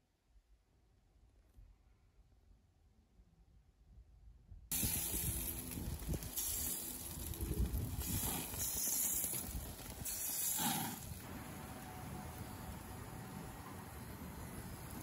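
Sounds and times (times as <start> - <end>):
food sizzling on a grill: 4.7 - 15.0.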